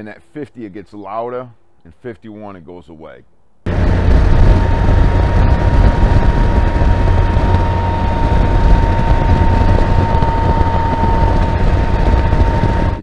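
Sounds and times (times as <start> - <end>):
loud steady hum: 3.6 - 13.0
wind rushing on microphone: 3.7 - 13.0.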